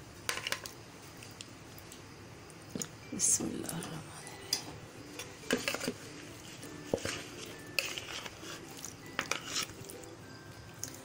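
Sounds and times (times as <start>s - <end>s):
metal spoon scraping plastic bowl: 5.2s - 9.9s.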